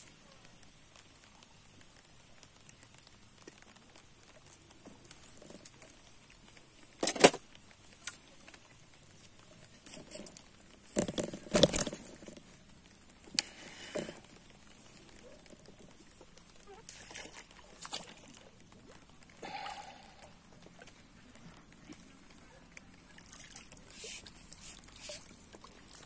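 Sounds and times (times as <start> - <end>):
fishing tackle knocking and rattling: 9.9 - 12.5.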